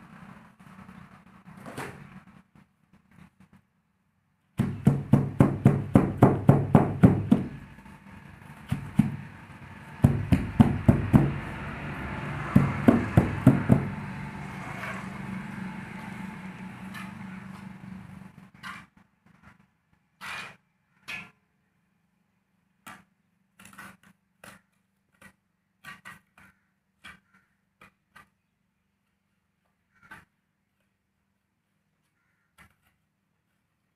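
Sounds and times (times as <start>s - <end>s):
rapid knocking on plastic moulds: 4.6s - 7.7s, 8.7s - 9.3s, 10.0s - 11.4s, 12.6s - 14.0s.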